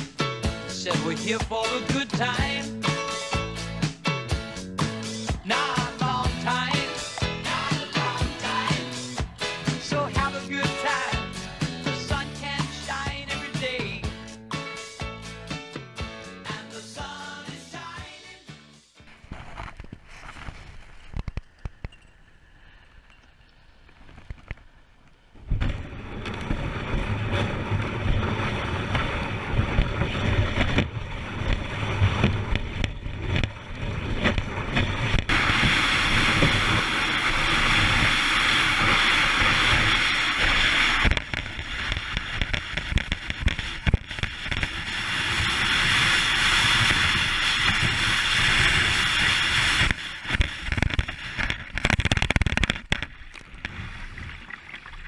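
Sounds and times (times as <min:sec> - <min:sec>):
kayak hull hissing over snow: 0:06.6 - 0:11.5, 0:26.7 - 0:51.5
rumbling wind and water noise: 0:19.2 - 0:55.0.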